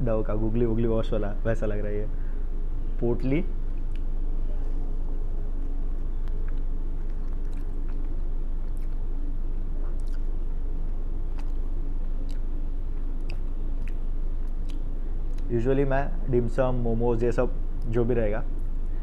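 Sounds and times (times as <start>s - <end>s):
steady low hum: 0.0s - 19.0s
wet mouth clicks chewing: 3.6s - 4.2s, 5.5s - 15.5s.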